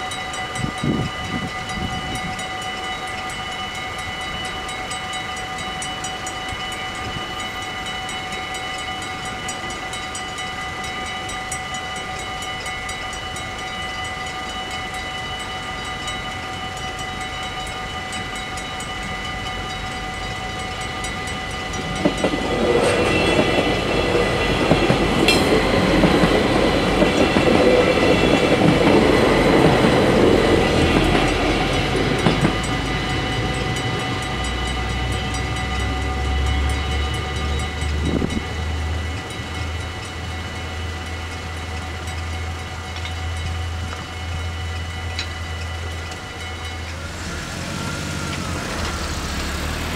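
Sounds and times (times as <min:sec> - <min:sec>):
diesel train engine: 0:00.0 - 0:49.9
level crossing bells ringing: 0:00.0 - 0:49.9
train wheels on rails: 0:00.0 - 0:49.9
sharp metallic clank: 0:25.2 - 0:25.8.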